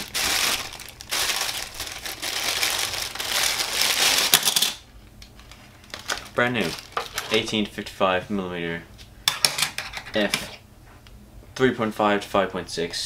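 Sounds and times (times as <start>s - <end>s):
plastic bag crinkling: 0.0s - 4.8s, 5.4s - 7.5s.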